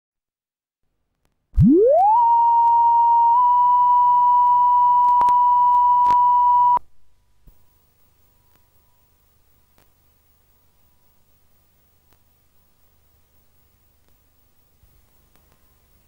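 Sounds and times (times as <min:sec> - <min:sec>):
high-pitched test tone beep: 0:01.6 - 0:06.8.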